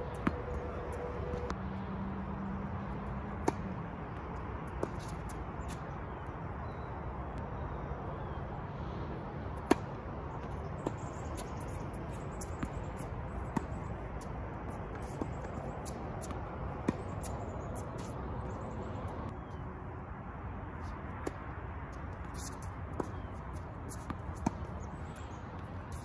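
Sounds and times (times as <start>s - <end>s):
tennis ball hits and bounces: 0.1s - 0.8s, 3.3s - 3.8s, 9.6s - 18.2s, 22.2s - 26.0s.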